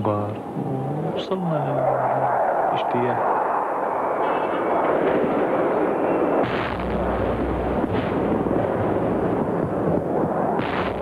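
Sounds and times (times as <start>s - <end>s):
jet aircraft overhead: 0.0s - 11.0s
bomb explosions: 4.2s - 11.0s.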